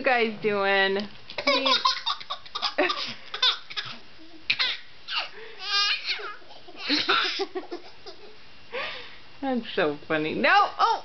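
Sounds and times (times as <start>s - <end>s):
baby squealing: 1.4s - 7.4s
baby laughing: 1.4s - 8.4s.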